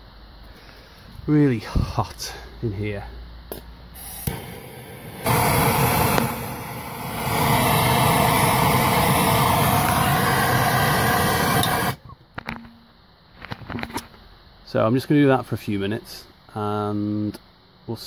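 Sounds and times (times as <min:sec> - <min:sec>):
propane torch roaring: 0:03.5 - 0:12.0.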